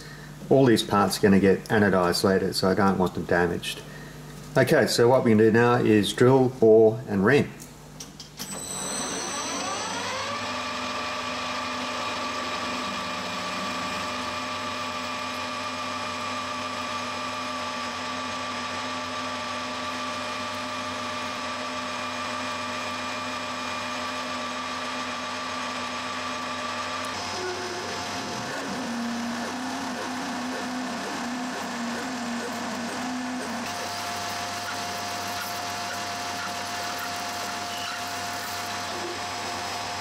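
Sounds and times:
drill boring into metal: 8.4 - 40.0
metal lathe whine: 8.4 - 40.0.

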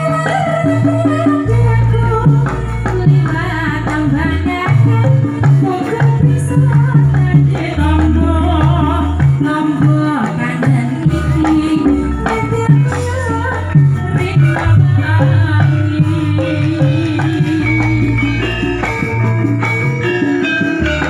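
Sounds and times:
hand drum strokes: 0.0 - 21.0
live band: 0.0 - 21.0
woman singing into a microphone: 0.0 - 21.0
deep bass line: 11.3 - 20.1.

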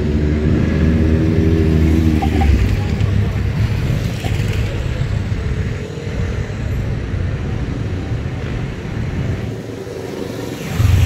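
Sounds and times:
motorcycles riding past: 9.2 - 11.0.

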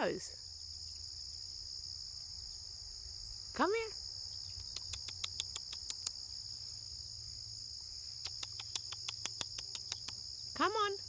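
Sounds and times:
crickets chirping: 0.0 - 11.0
quick sharp clicks: 4.6 - 6.2, 8.2 - 10.2.

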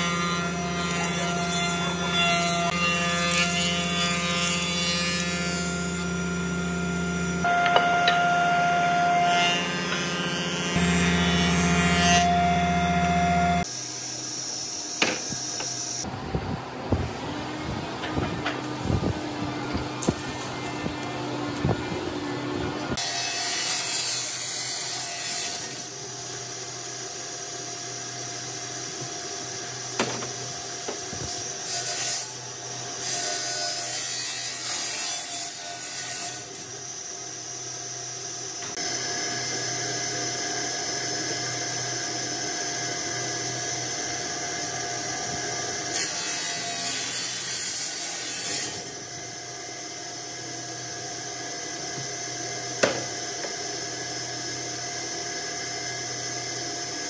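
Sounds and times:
power tool cutting wood: 0.0 - 16.1, 22.8 - 57.0
power tool motor running: 3.4 - 16.1.

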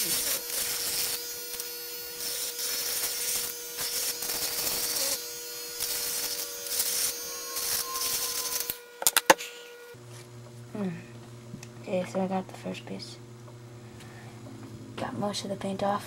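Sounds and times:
rotary tool motor whine: 0.0 - 10.0.

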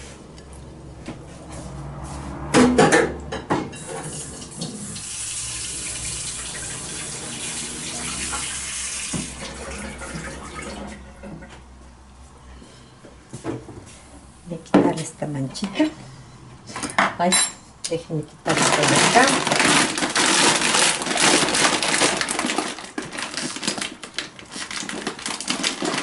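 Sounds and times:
water running from tap: 3.8 - 11.0.

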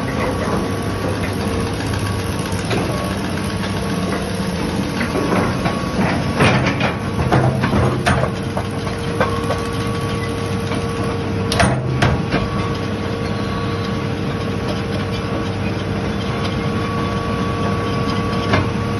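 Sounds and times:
excavator diesel engine idling: 0.0 - 11.9.

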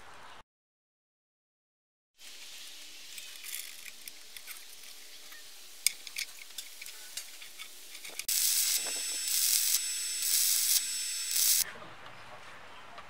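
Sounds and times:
low hiss: 2.2 - 11.6
welding arc crackling: 2.2 - 11.6
steel parts clicking: 3.1 - 11.6.

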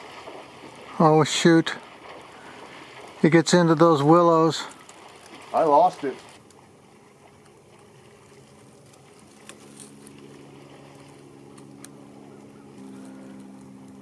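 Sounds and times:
faint engine drone: 0.0 - 14.0
faint sharp clicks: 11.5 - 12.0.

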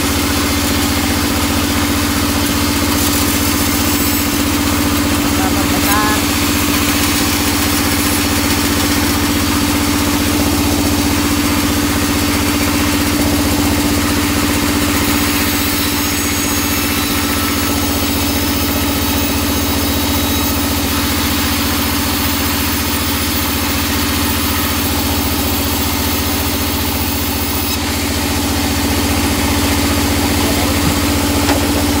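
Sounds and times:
band sawmill droning: 0.0 - 32.0.

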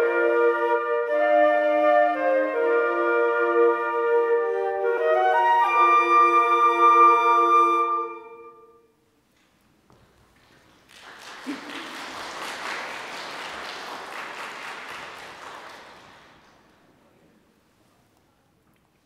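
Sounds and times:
audience applause: 10.3 - 17.0.

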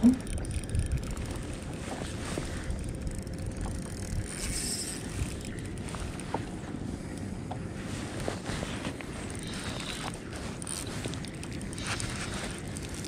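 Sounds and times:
fishing reel clicks: 0.0 - 1.8, 2.6 - 6.2, 9.3 - 13.0
wind and water rumble: 0.0 - 13.0.

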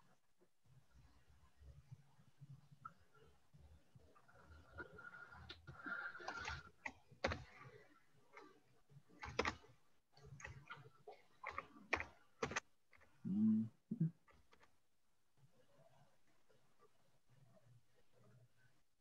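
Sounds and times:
computer keyboard typing: 7.2 - 7.5, 9.2 - 9.6, 11.4 - 12.6.

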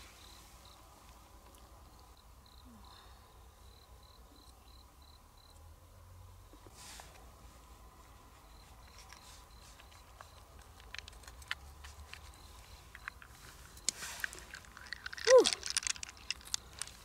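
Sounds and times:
small clicks: 9.0 - 17.0
person exclaiming: 15.2 - 15.6.

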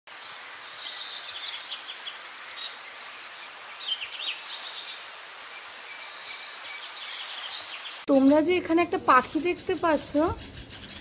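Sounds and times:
steady background hiss: 0.1 - 10.5
small birds twittering: 0.1 - 11.0.

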